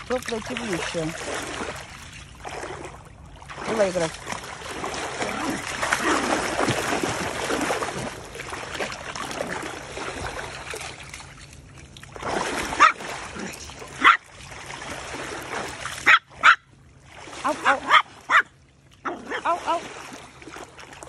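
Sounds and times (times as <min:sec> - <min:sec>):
stream water splashing: 0:00.0 - 0:21.0
small dog barking: 0:12.8 - 0:13.0, 0:14.0 - 0:14.2, 0:16.0 - 0:16.7, 0:17.6 - 0:19.8.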